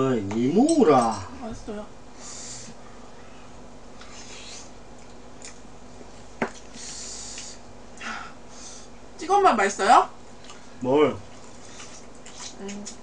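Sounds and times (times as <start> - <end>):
mouth and breath noises while chewing: 11.3 - 13.0.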